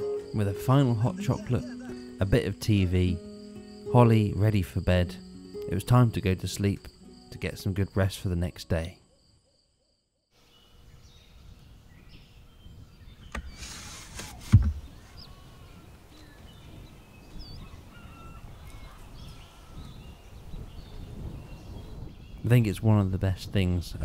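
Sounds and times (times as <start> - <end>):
birds chirping and singing: 0.0 - 6.8, 10.4 - 23.1
sliding window scraping open: 13.2 - 15.0
window clunk: 13.3 - 14.9.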